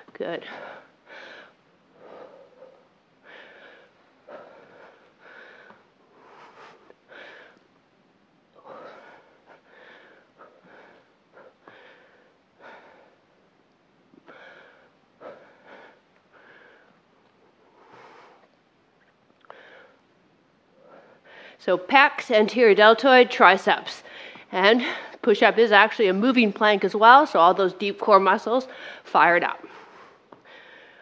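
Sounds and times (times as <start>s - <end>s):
woman breathing hard: 0.4s - 7.6s, 8.5s - 13.3s, 14.2s - 18.6s, 19.4s - 20.1s, 20.7s - 21.6s, 24.0s - 25.3s, 28.7s - 31.0s.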